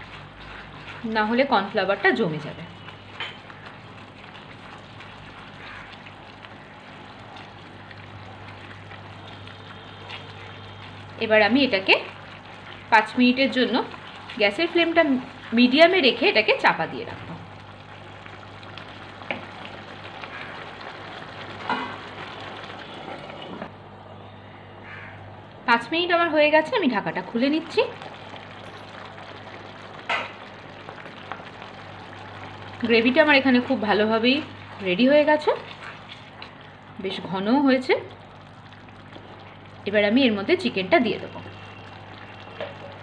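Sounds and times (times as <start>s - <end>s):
spatula stirring in pan: 0.0s - 16.7s
gravy bubbling and sizzling: 0.0s - 23.7s, 24.8s - 43.0s
sauce boiling in frying pan: 0.0s - 23.7s, 25.7s - 43.0s
low steady hum: 0.0s - 43.0s.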